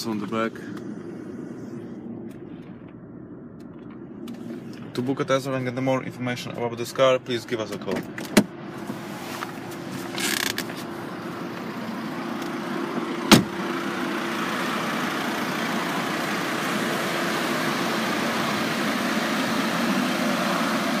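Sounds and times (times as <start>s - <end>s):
low even hum: 0.0s - 13.2s
car door slamming shut: 13.3s - 13.6s.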